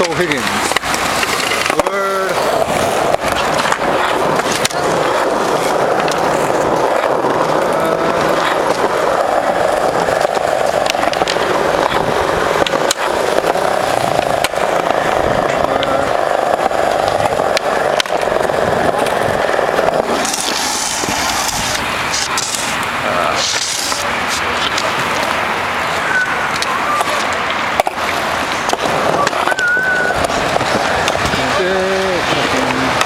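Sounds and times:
skateboard wheels rolling on concrete: 0:00.0 - 0:33.0.

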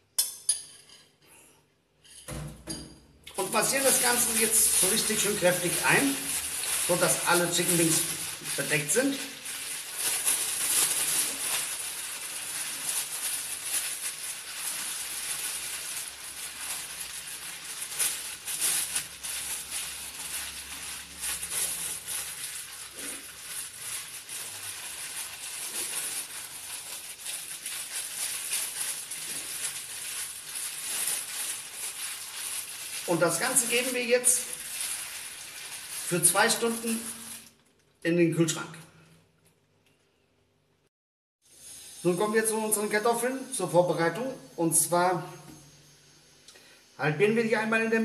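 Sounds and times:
plastic bag crinkling: 0:03.2 - 0:38.0.

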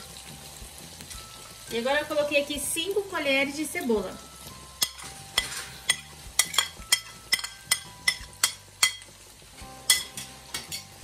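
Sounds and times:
fat sizzling: 0:00.0 - 0:11.0
metal spoon scraping a pan: 0:04.7 - 0:11.0.

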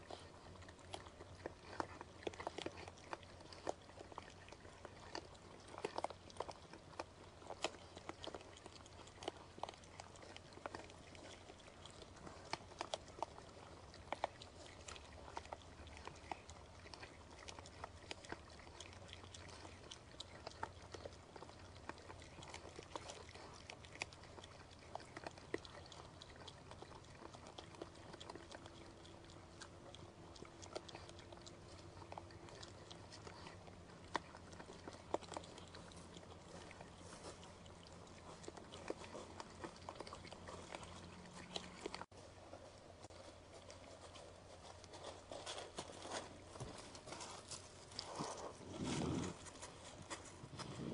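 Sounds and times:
low steady hum: 0:00.0 - 0:50.9
soft ticks and rustles: 0:00.0 - 0:50.9.

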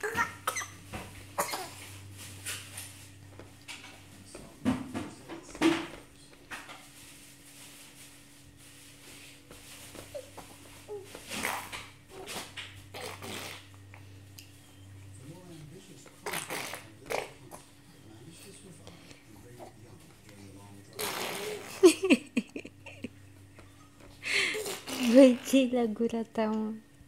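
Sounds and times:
baby blowing raspberries: 0:11.3 - 0:11.8, 0:12.9 - 0:13.7, 0:16.2 - 0:17.4, 0:20.9 - 0:21.8, 0:24.4 - 0:25.6.

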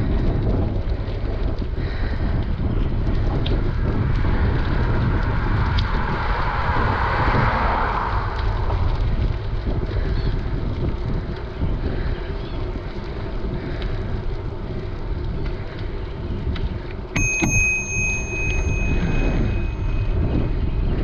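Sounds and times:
wind on microphone: 0:00.0 - 0:21.0
bicycle bell ringing: 0:17.2 - 0:21.0.

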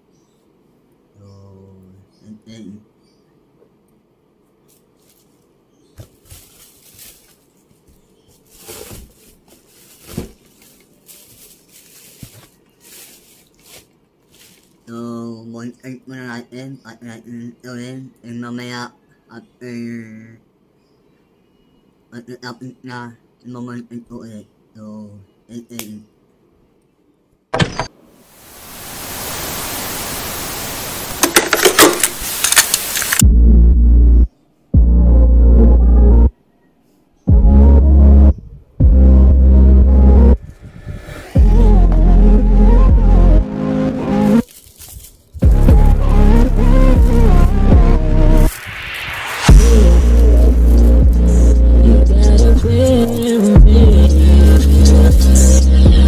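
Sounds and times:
cardboard box rustling: 0:06.0 - 0:14.8, 0:44.4 - 0:45.3
steady hiss: 0:28.0 - 0:33.2, 0:48.5 - 0:51.6
sharp clicks: 0:31.2 - 0:33.2
loud bass-heavy music: 0:33.2 - 0:36.3, 0:37.3 - 0:40.4, 0:41.4 - 0:44.4, 0:45.4 - 0:48.5, 0:49.5 - 0:56.0.

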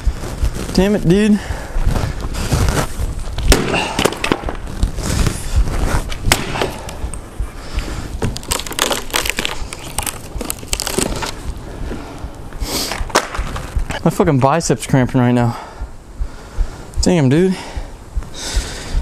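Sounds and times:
wood cracking: 0:01.7 - 0:14.0
axe chopping wood: 0:03.4 - 0:04.6, 0:06.2 - 0:07.0, 0:13.0 - 0:13.6.

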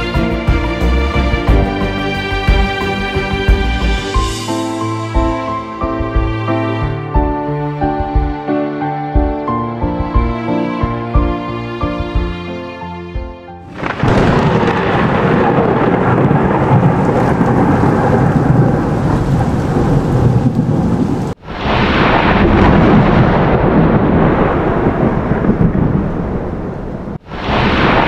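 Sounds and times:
deep rumbling thunder: 0:00.0 - 0:04.5, 0:13.6 - 0:28.0
heavy rain: 0:00.0 - 0:07.0, 0:13.6 - 0:28.0.

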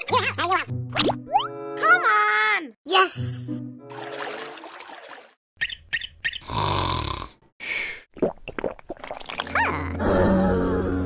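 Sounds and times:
background music: 0:00.0 - 0:04.6.

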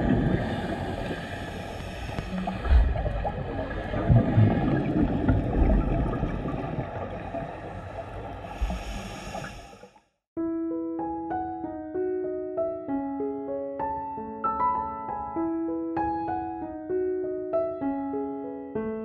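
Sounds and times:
underwater bubbling of exhaled air: 0:00.0 - 0:10.0
piano melody: 0:10.4 - 0:19.0.

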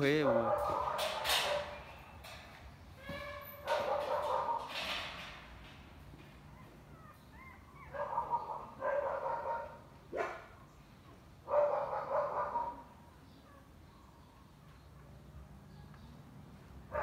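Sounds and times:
puppies whimpering: 0:06.4 - 0:08.8.

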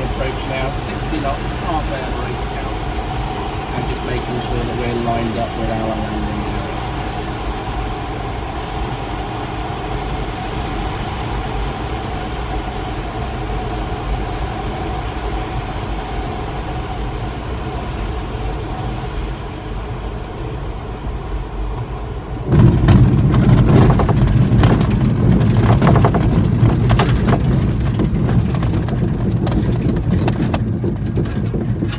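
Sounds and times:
air rushing past glider canopy: 0:00.0 - 0:31.9
landing wheel rumbling on grass: 0:22.5 - 0:31.9.

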